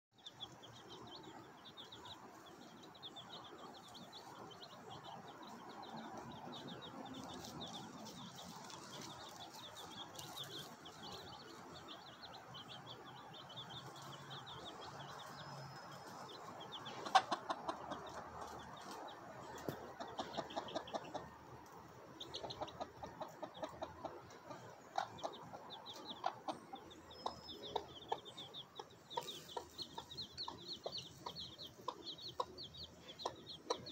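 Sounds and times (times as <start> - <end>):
chicks chirping: 0.2 - 33.9
hen clucking: 0.3 - 33.9.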